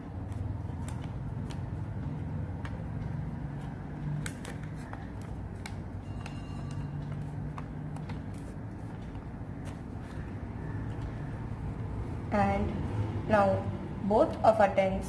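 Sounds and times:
paper crackling while folded: 0:00.0 - 0:11.8.

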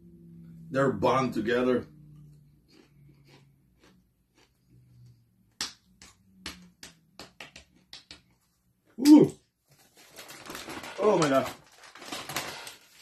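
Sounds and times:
person chewing popcorn: 0:02.1 - 0:05.6.

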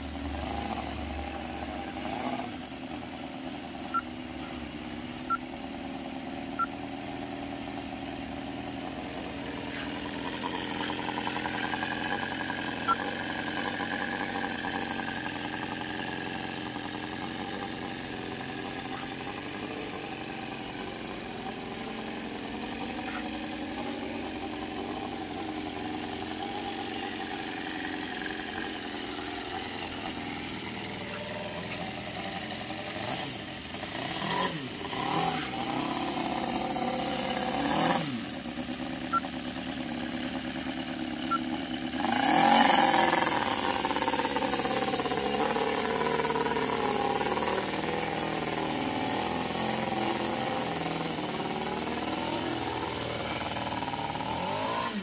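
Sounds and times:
model engine revving: 0:09.5 - 0:55.0.

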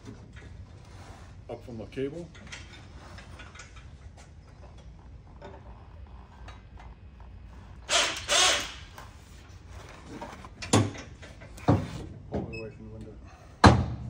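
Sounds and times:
metal creaks and clunks: 0:02.1 - 0:09.2, 0:09.8 - 0:13.9.

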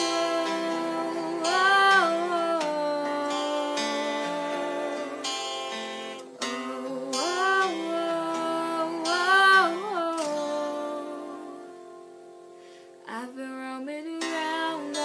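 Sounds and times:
wordless vocal gliding up: 0:00.0 - 0:11.7
pop backing track chords: 0:00.0 - 0:12.8.

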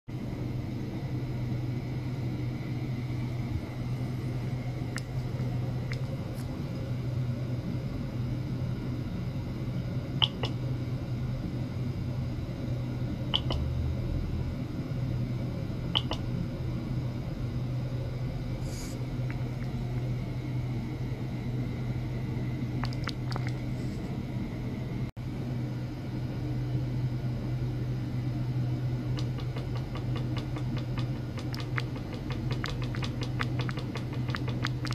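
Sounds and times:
low electronic hum: 0:00.1 - 0:34.9
sharp clicks: 0:10.2 - 0:10.6, 0:13.4 - 0:13.6, 0:16.0 - 0:16.2.

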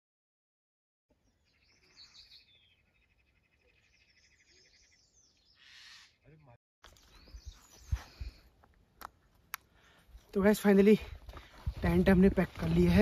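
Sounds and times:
small birds chirping: 0:01.1 - 0:10.1.

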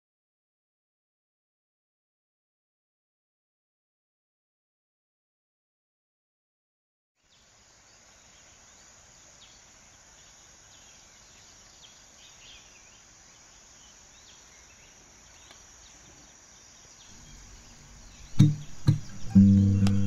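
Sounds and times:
insects droning: 0:07.2 - 0:20.0
bird chirps: 0:10.2 - 0:20.0.

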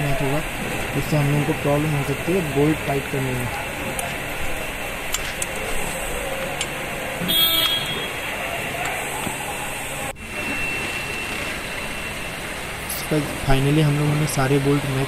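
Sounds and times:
vehicle horn toot: 0:07.2 - 0:08.2.

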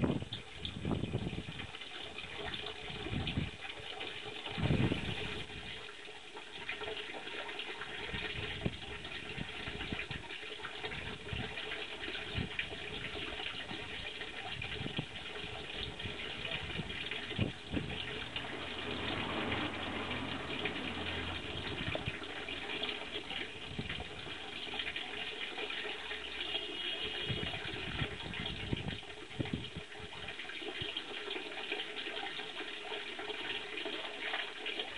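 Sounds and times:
water pouring into pond: 0:00.0 - 0:34.9
low thuds or splashes: 0:15.9 - 0:24.2.

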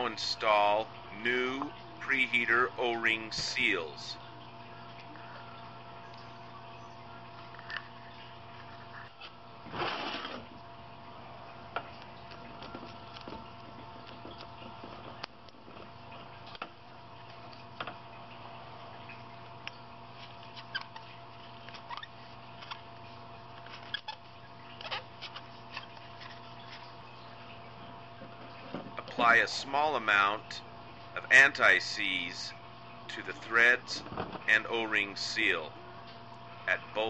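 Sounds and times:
steady hum: 0:00.0 - 0:37.0
scraping rustle: 0:09.2 - 0:10.6.

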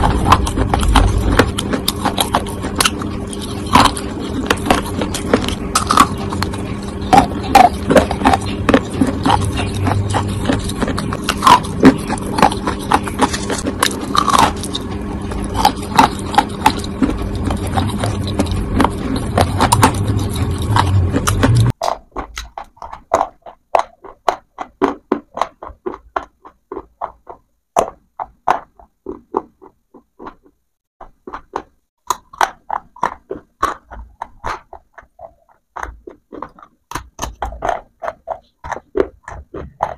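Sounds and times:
low hum: 0:00.0 - 0:21.8
crunching dry clay: 0:00.0 - 0:39.9.

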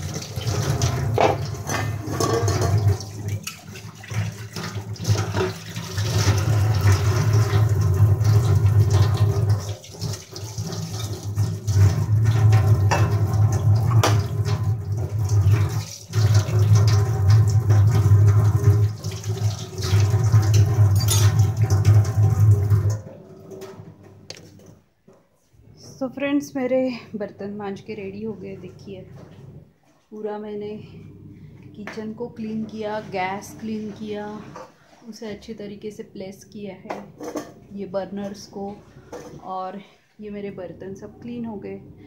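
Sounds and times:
tap water running into sink: 0:00.0 - 0:24.8
metal dishes clinking: 0:01.2 - 0:02.8, 0:20.9 - 0:21.4.

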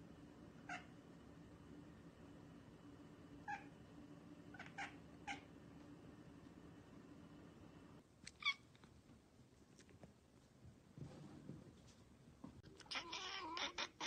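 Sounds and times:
faint low hum: 0:00.0 - 0:14.0
cat chirping: 0:00.6 - 0:00.9, 0:08.3 - 0:08.7, 0:12.8 - 0:14.0.

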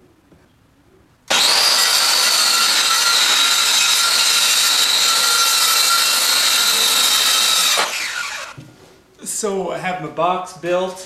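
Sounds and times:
circular saw cutting wood: 0:01.3 - 0:08.6.

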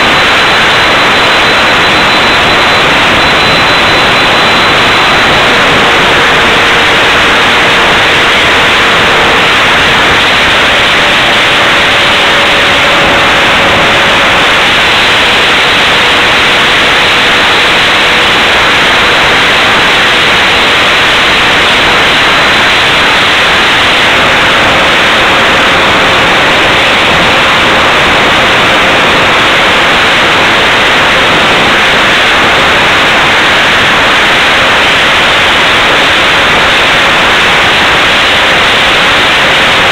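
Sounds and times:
faint hum: 0:00.0 - 0:39.9
model jet fan roaring: 0:00.0 - 0:39.9.

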